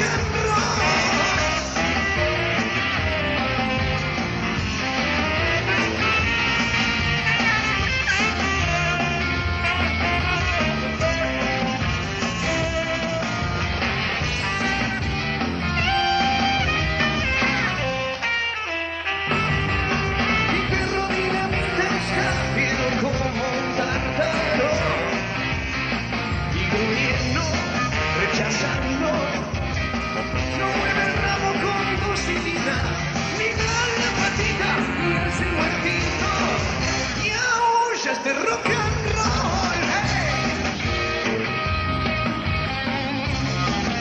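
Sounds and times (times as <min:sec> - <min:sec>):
person singing: 0:00.0 - 0:03.6, 0:20.2 - 0:25.4, 0:30.4 - 0:40.6
rock band playing live: 0:00.0 - 0:44.0.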